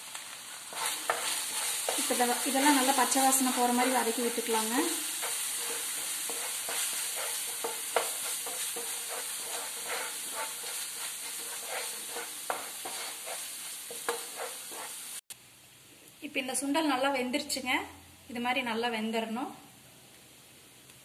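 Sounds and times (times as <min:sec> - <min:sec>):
paste sizzling in oil: 0:00.0 - 0:15.2
wooden spatula scraping pan: 0:00.7 - 0:15.2.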